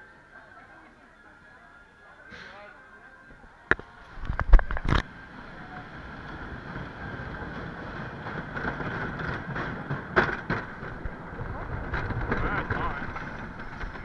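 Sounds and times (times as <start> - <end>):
roller coaster wheels rumbling: 4.0 - 14.0.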